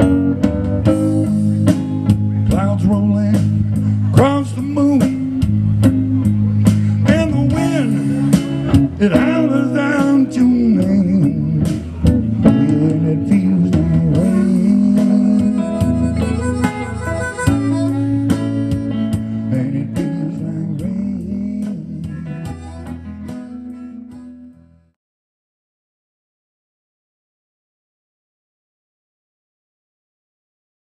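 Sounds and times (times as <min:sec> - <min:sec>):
electric guitar: 0:00.0 - 0:24.9
bass guitar: 0:00.0 - 0:25.0
harmonica: 0:14.1 - 0:20.6, 0:21.9 - 0:24.9.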